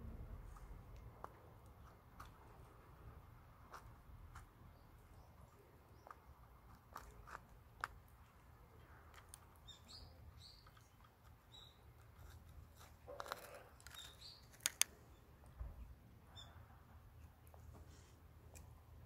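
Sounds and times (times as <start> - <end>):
faint high bird chirps: 9.6 - 10.9, 16.2 - 16.8
sharp clicks: 12.8 - 15.0.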